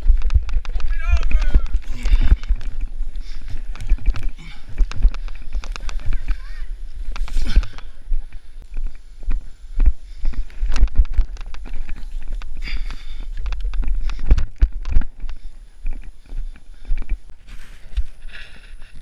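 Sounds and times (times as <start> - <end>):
footsteps on grass and dirt: 0.0 - 19.0.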